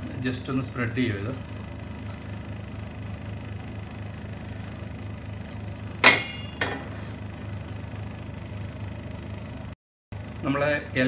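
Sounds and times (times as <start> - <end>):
steady low hum: 0.0 - 11.0
metal pan clanking: 6.0 - 7.0.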